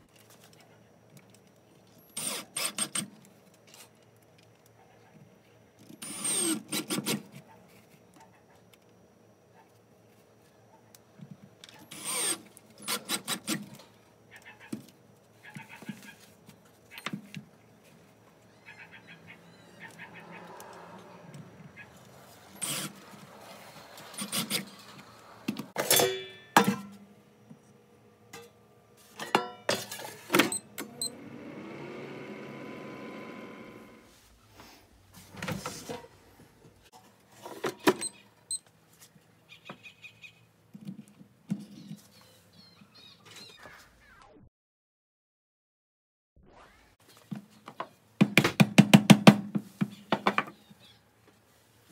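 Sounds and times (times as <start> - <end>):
small electric motor running: 2.2 - 3.0, 6.0 - 7.1, 11.9 - 13.6, 22.0 - 25.5, 30.8 - 34.1.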